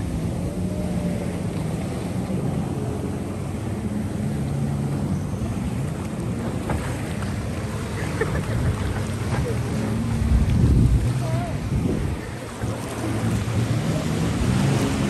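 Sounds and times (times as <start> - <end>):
water rushing past: 0.0 - 15.0
watercraft engine drone: 0.0 - 15.0
wind buffeting microphone: 8.3 - 15.0.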